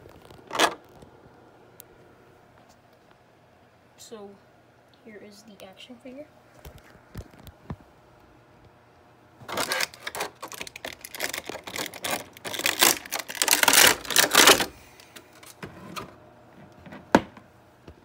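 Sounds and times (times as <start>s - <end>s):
plastic blister tray crackling: 0.0s - 1.1s, 9.4s - 16.1s.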